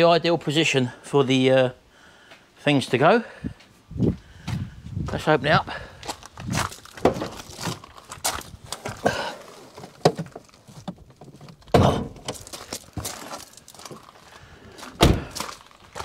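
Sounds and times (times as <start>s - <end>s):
footsteps on gravel: 4.0s - 16.0s
loud thunk: 11.7s - 12.3s, 15.0s - 15.4s.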